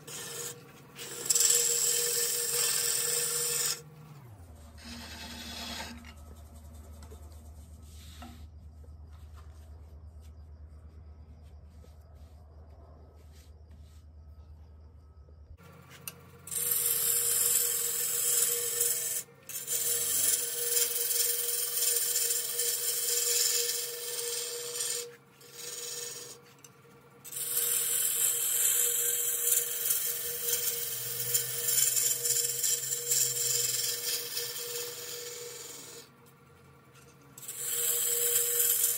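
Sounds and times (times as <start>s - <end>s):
lathe humming: 0.0s - 7.2s, 16.0s - 38.9s
gouge scraping spinning wood: 0.0s - 10.2s, 15.6s - 38.9s.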